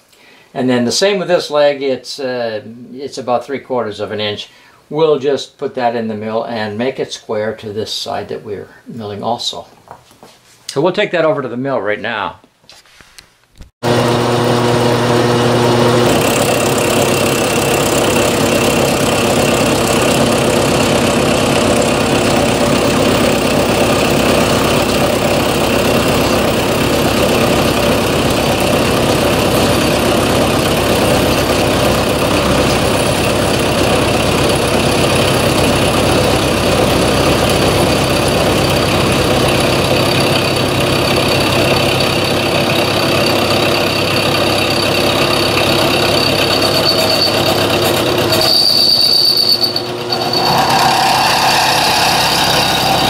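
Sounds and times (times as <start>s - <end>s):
milling machine cutting metal: 13.8s - 53.0s
high-pitched cutting squeal: 43.0s - 53.0s.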